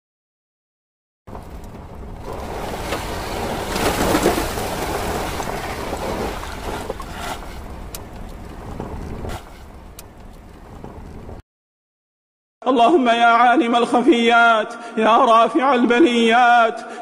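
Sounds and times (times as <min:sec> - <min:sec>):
faint ticks: 0:07.8 - 0:11.2.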